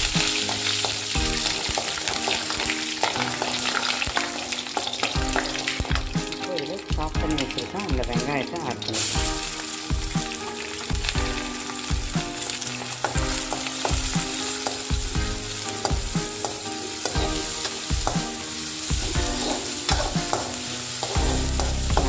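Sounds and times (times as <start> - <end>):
onions sizzling in hot oil: 0.0 - 22.0
metal spatula scraping pan: 19.0 - 22.0.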